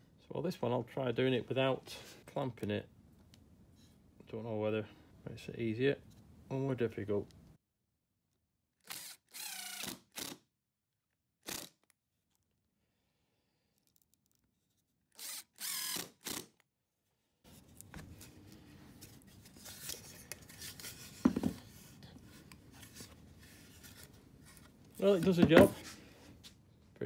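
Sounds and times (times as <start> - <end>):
cordless drill motor whine: 15.2 - 16.4.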